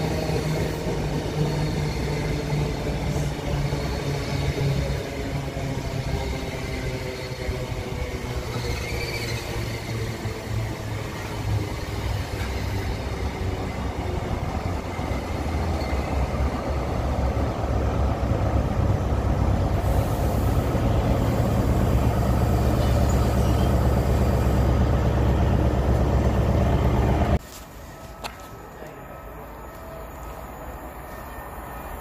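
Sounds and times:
diesel locomotive engine: 0:00.0 - 0:32.0
train coaches rumbling past: 0:00.0 - 0:32.0.

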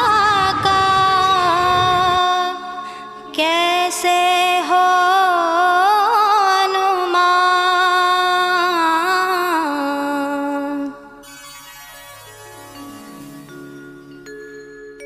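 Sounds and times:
devotional song: 0:00.0 - 0:11.3.

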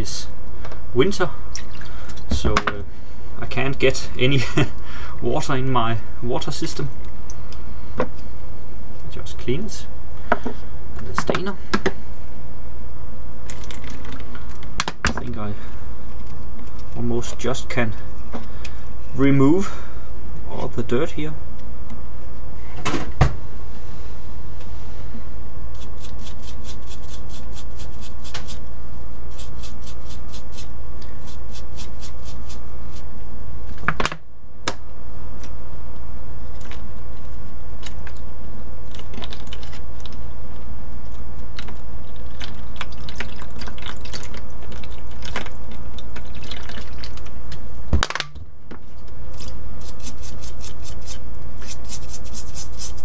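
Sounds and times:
steady low hum: 0:00.0 - 0:53.0
brush scrubbing metal mesh: 0:25.8 - 0:28.7, 0:29.3 - 0:33.1, 0:49.3 - 0:53.0
water sloshing and pouring: 0:42.0 - 0:47.3.

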